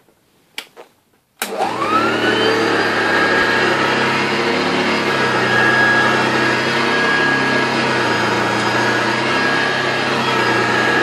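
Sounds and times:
upright vacuum cleaner running: 1.4 - 11.0.

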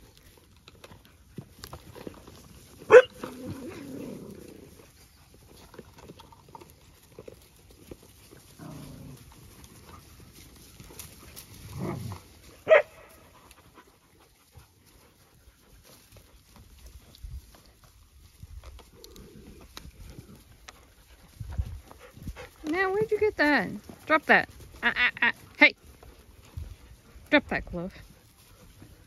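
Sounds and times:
dog barking sharply: 2.9 - 3.1, 12.7 - 13.0
dog growling low: 3.1 - 4.8, 8.5 - 9.5, 11.7 - 12.3.

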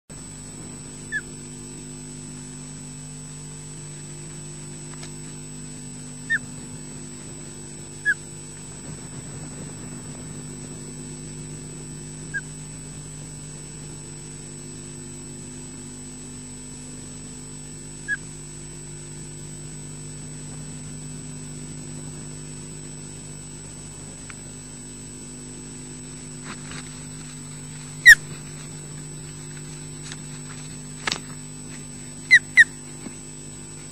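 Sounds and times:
electrical hum: 0.1 - 33.9
wings flapping rustle: 8.2 - 11.6, 26.2 - 33.9
osprey short high calls: 32.2 - 32.8.

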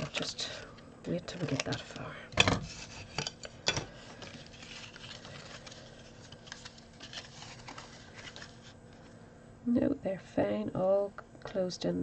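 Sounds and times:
paper rustling: 1.3 - 9.1.

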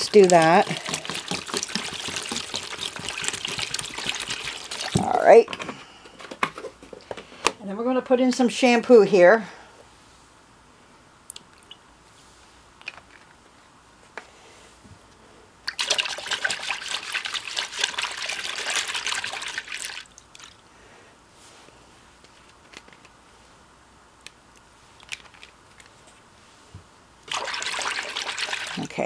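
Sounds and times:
water splashing into plastic basin: 0.0 - 5.2, 15.7 - 20.6, 27.2 - 29.0.

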